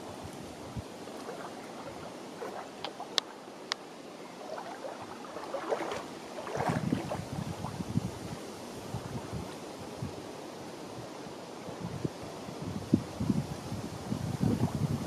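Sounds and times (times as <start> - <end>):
lake water lapping: 0.0 - 9.8.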